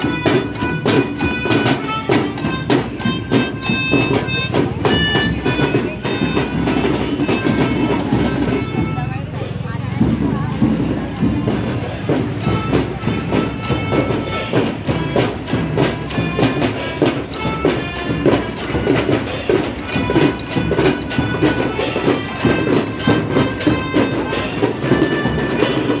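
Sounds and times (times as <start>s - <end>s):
marching band playing: 0.0s - 26.0s
marching drum beat: 0.0s - 26.0s.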